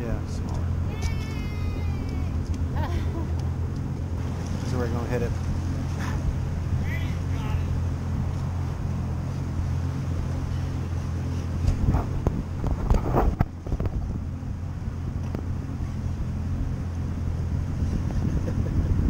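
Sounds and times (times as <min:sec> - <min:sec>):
boat engine idling: 0:00.0 - 0:19.0
wind buffeting microphone: 0:00.0 - 0:19.0.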